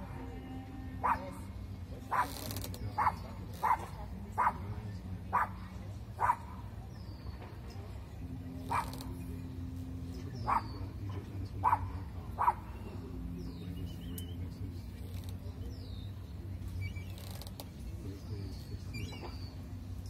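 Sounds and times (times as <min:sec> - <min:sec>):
low hum: 0:00.0 - 0:20.0
gulls calling: 0:08.2 - 0:20.0.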